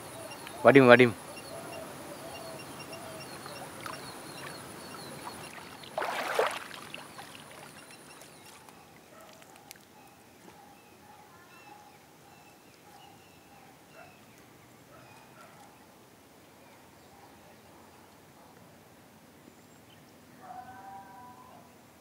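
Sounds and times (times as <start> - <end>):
insect whining: 0.0 - 8.2
birds chirping: 0.0 - 17.8
water splashing: 3.1 - 9.9.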